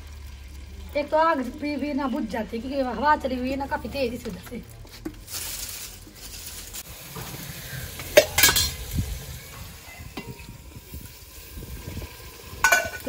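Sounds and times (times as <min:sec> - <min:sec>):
spices sizzling in hot oil: 0:00.0 - 0:13.0
wind rumble on microphone: 0:07.2 - 0:13.0
steel ladle clinking against pot: 0:08.2 - 0:08.8, 0:12.6 - 0:13.0.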